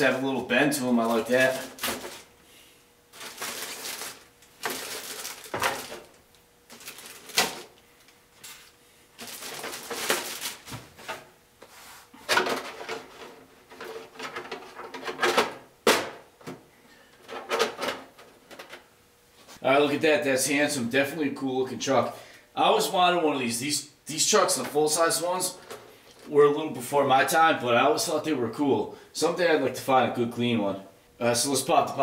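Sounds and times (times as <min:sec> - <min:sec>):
plastic wrapping crinkling: 0:00.8 - 0:02.4, 0:03.1 - 0:11.1.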